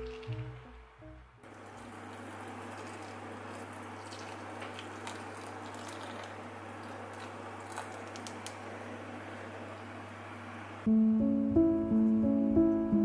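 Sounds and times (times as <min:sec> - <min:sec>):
small drips: 0:01.5 - 0:08.6
water pouring into a bowl: 0:01.6 - 0:08.4.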